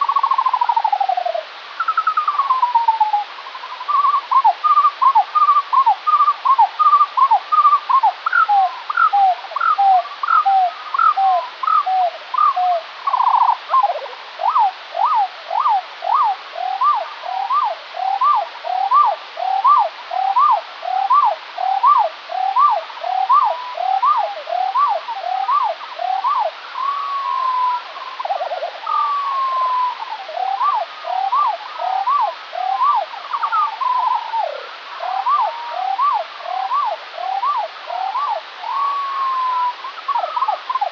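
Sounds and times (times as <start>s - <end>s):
slowed bird song: 0.0s - 40.9s
steady hiss: 0.0s - 40.9s.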